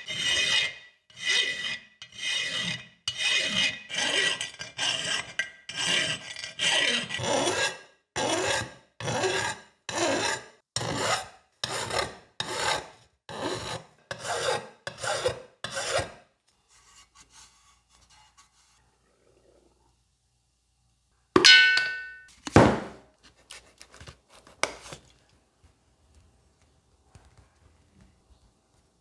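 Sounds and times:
abrasive rasping on metal: 0:00.0 - 0:16.1.

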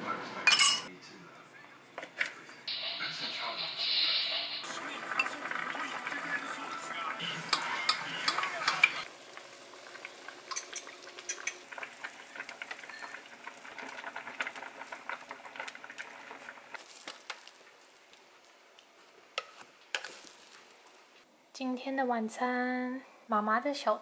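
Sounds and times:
pots bubbling and sizzling: 0:02.0 - 0:21.3.

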